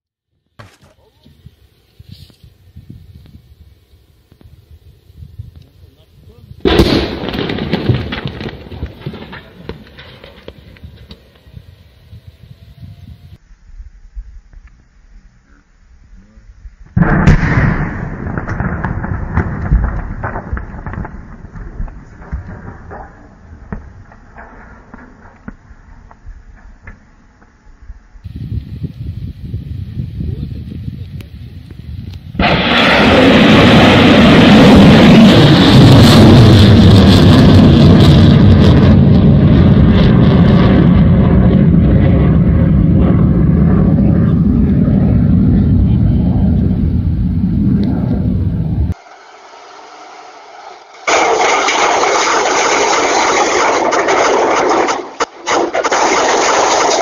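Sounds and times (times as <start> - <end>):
crackling rumble with sharp pops: 0.3 - 12.3, 13.3 - 49.0, 50.6 - 57.0
loud blast: 6.6 - 10.6, 17.0 - 25.6, 32.4 - 57.0
missile rocket motor rushing: 46.6 - 57.0.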